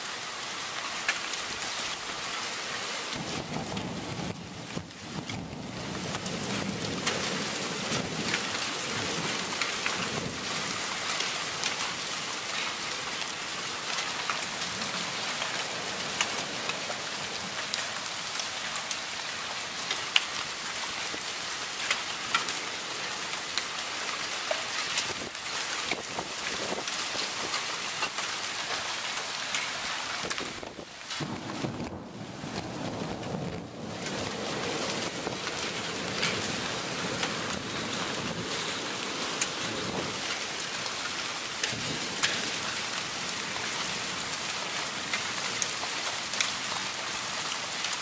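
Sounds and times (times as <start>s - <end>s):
heavy rain pouring: 0.0s - 48.0s
raindrops ticking on surfaces: 0.0s - 48.0s
low thunder rumble: 3.2s - 8.4s, 30.2s - 38.7s.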